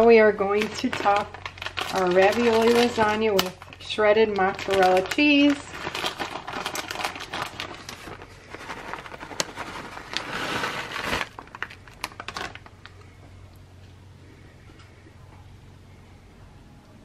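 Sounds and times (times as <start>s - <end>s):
plastic bag crinkling: 0.0s - 13.2s
cheese shreds pouring with a rustle: 0.6s - 12.7s.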